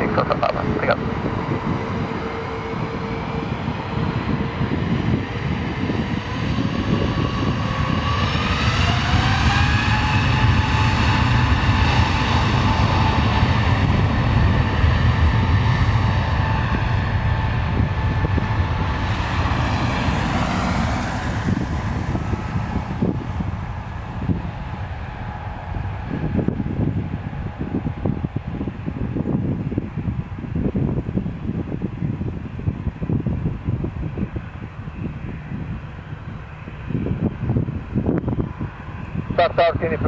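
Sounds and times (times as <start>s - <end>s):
jet engines spooling up: 0.0s - 31.8s
deep engine rumble: 0.0s - 40.0s.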